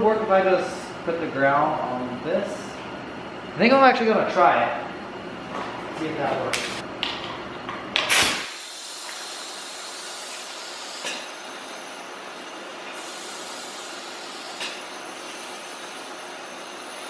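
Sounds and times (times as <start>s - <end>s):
electric sparking snaps: 8.0s - 9.2s
compressed air hissing: 8.0s - 17.0s.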